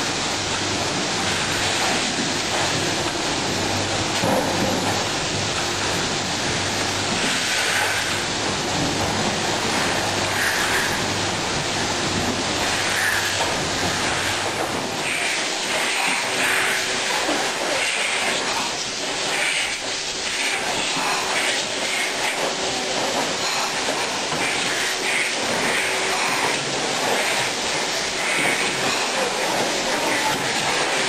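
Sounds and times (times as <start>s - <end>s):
machinery rushing noise: 0.0s - 31.0s.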